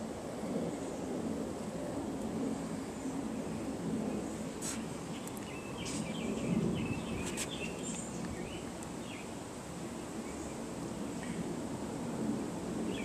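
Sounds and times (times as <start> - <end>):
low outdoor rumble: 0.0 - 13.0
small bird chirping: 5.1 - 9.3.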